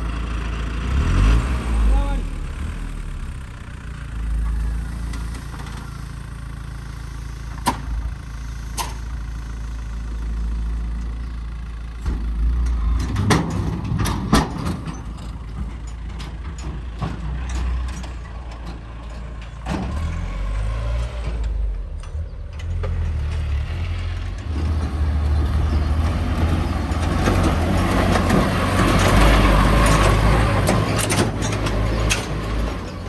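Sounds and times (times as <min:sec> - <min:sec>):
diesel engine running at low revs: 0:00.0 - 0:33.0
metal clanks and ticks: 0:12.1 - 0:20.2, 0:21.0 - 0:23.5, 0:26.5 - 0:33.0.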